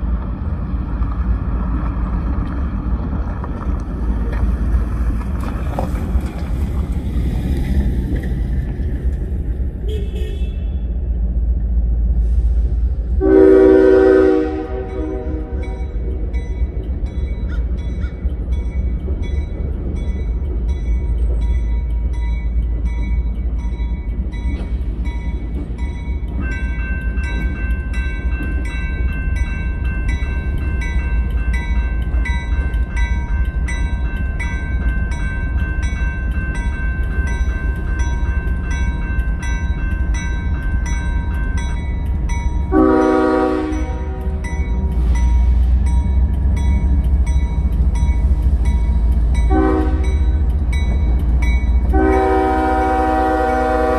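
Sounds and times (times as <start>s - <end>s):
diesel locomotives rumbling: 0.0s - 53.9s
train horn blast: 9.8s - 10.8s, 13.2s - 15.8s, 42.7s - 44.4s, 49.5s - 50.2s, 51.9s - 53.9s
crossing bell ringing: 13.2s - 53.9s.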